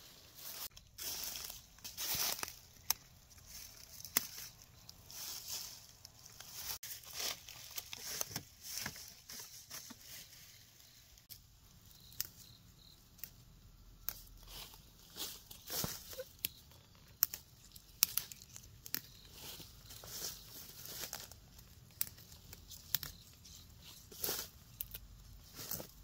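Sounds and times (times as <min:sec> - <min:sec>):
leaves rustling and tearing: 0:00.0 - 0:11.4, 0:12.0 - 0:26.0
plant stems snapping: 0:01.3 - 0:05.0, 0:14.0 - 0:14.5, 0:15.8 - 0:19.3, 0:20.9 - 0:25.9.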